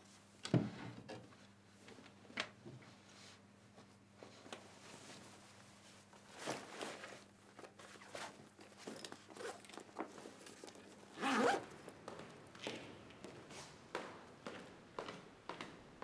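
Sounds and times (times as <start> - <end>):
cloth rustling: 4.8 - 11.8
bag zipper pulled: 11.2 - 11.6.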